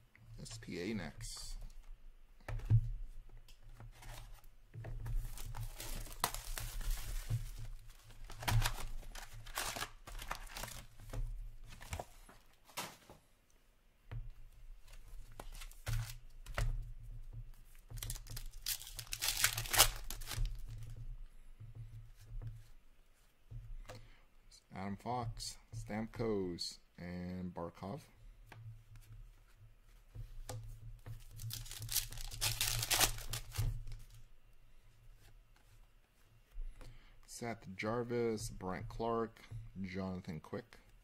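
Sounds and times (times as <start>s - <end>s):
wrappers torn and crinkled: 8.3s - 10.8s, 18.0s - 20.6s, 31.3s - 33.5s.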